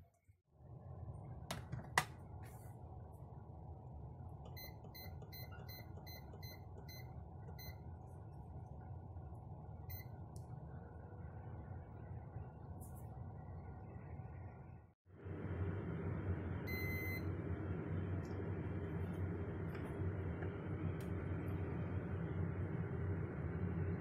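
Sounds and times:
steady low hum: 0:00.6 - 0:24.0
rice cooker beeping: 0:04.5 - 0:07.7, 0:16.6 - 0:17.4.

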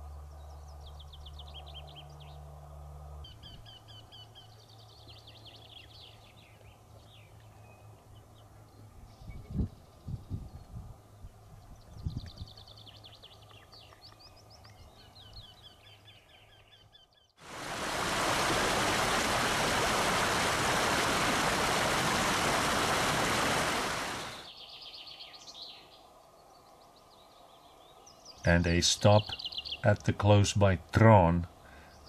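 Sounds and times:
birds chirping: 0:11.6 - 0:32.0
loud steady rushing noise: 0:17.5 - 0:24.4.

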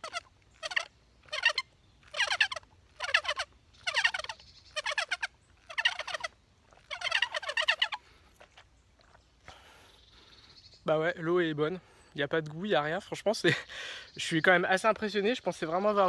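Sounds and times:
sputtering slurps through straw: 0:00.0 - 0:09.2.

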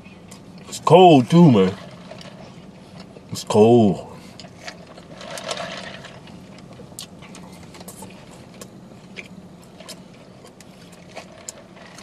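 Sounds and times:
steady low hum: 0:00.0 - 0:12.0
chewing: 0:06.2 - 0:12.0.

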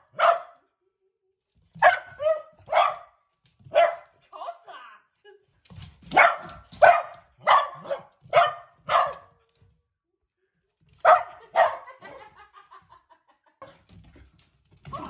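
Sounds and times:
dog barking and yipping: 0:00.0 - 0:00.6, 0:01.8 - 0:04.1, 0:06.1 - 0:09.4, 0:11.0 - 0:12.1.

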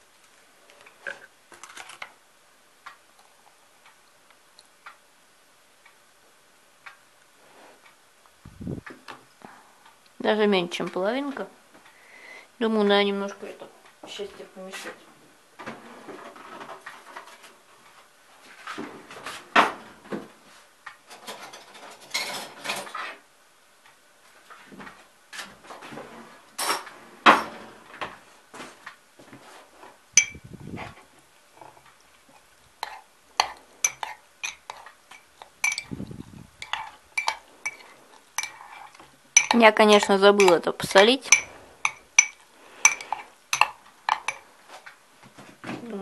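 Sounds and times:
cutlery and dishes clattering: 0:21.1 - 0:23.1.

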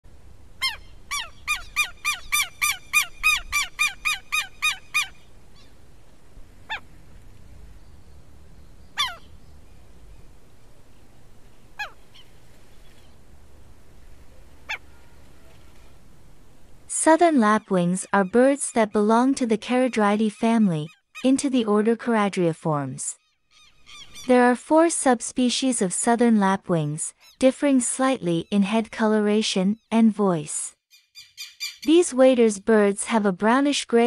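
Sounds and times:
lapwing calling: 0:00.5 - 0:16.4, 0:23.3 - 0:24.3, 0:31.0 - 0:32.0.

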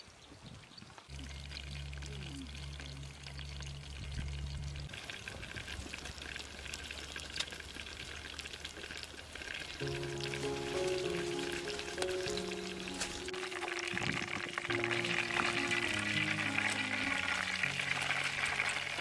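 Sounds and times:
water trickling in a stream: 0:00.0 - 0:19.0
low steady hum: 0:01.1 - 0:04.9.

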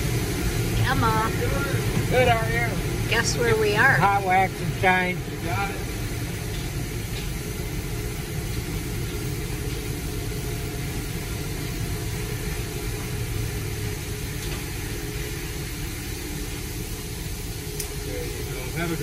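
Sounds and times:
car idling: 0:00.0 - 0:19.0
car wash water and machinery: 0:00.0 - 0:19.0.

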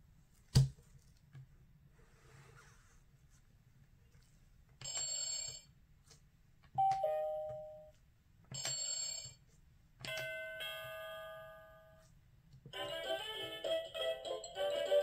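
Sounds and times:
electronic doorbell chimes: 0:06.8 - 0:07.9.

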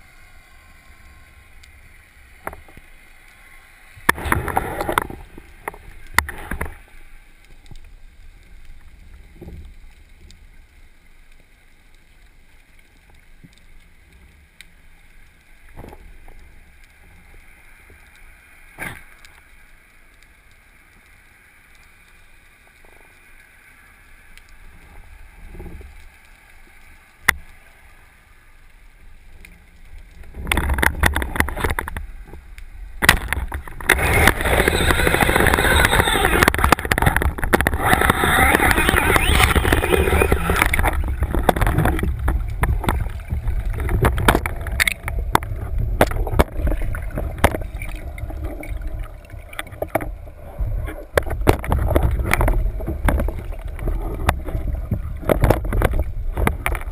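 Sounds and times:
faint underwater hiss: 0:00.0 - 0:30.5.

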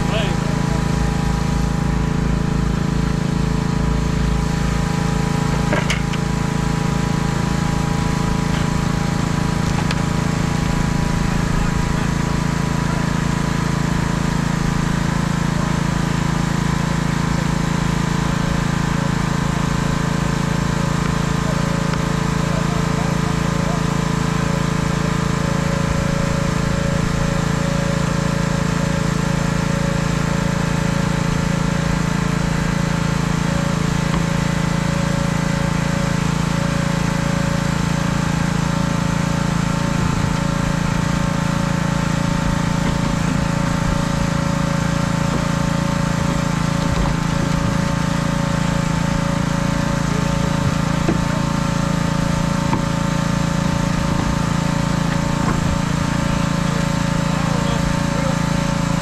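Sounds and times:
engine droning steadily: 0:00.0 - 0:59.0.

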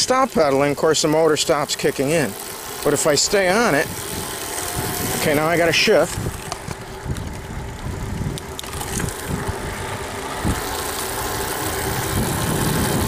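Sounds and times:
electric bike motor whine: 0:00.0 - 0:13.0
wind rumbling on microphone: 0:02.9 - 0:13.0.

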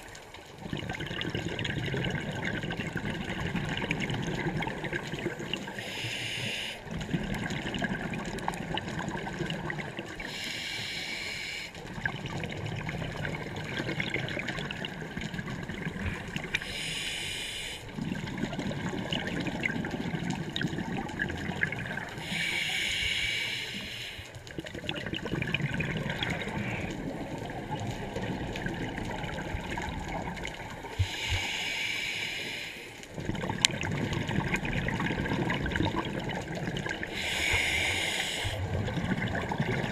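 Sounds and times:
regulator breathing hiss: 0:05.8 - 0:06.8, 0:10.2 - 0:11.8, 0:16.5 - 0:17.9, 0:22.2 - 0:24.4, 0:31.0 - 0:33.0, 0:37.1 - 0:38.6
low bubbling rumble: 0:24.5 - 0:30.9, 0:33.2 - 0:37.1, 0:38.6 - 0:39.9.

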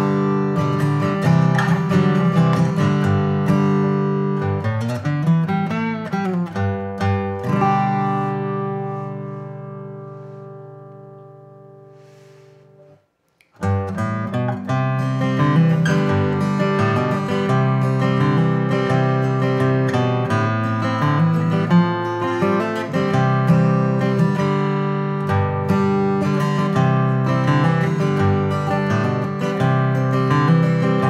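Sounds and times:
acoustic guitar chords: 0:00.0 - 0:31.0.

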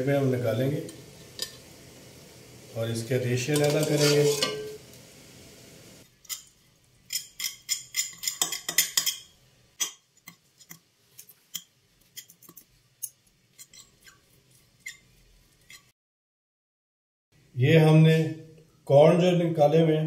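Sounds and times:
forks clicking on ceramic plate: 0:07.1 - 0:13.9.

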